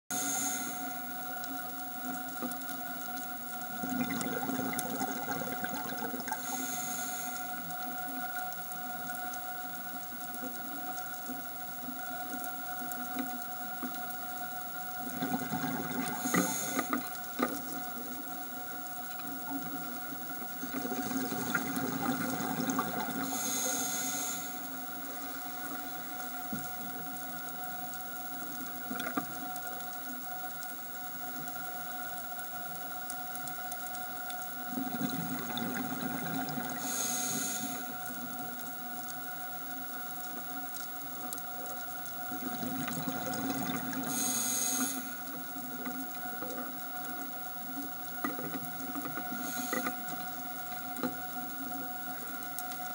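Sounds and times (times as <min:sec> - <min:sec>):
regulator hissing: 0:00.1 - 0:01.8, 0:06.2 - 0:07.8, 0:16.1 - 0:19.1, 0:23.2 - 0:27.4, 0:36.7 - 0:38.5, 0:44.0 - 0:45.6, 0:49.2 - 0:50.8
regulator air bubbles: 0:03.6 - 0:07.7, 0:15.0 - 0:18.2, 0:19.1 - 0:27.2, 0:34.7 - 0:38.0, 0:42.2 - 0:45.5.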